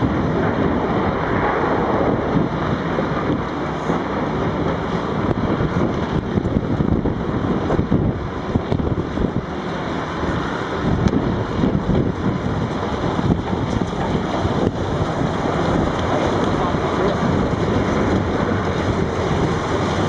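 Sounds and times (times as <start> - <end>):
heavy diesel machinery: 0.0 - 20.0
wheel loader diesel engine: 0.0 - 20.0
wind buffeting microphone: 0.0 - 20.0.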